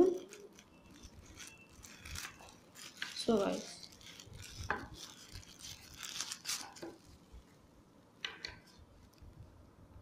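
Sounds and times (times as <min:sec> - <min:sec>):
packaging rustling and crinkling: 0:00.0 - 0:07.6.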